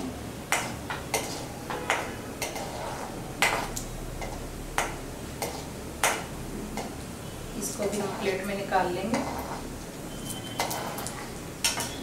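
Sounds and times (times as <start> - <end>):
metal ladle scraping pan: 0.8 - 3.7, 9.1 - 9.7, 10.3 - 12.0.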